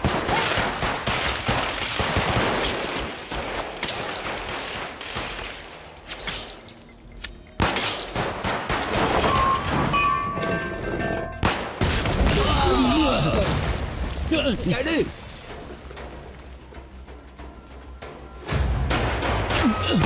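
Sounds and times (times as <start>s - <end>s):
rapid gunfire: 0.0s - 5.6s.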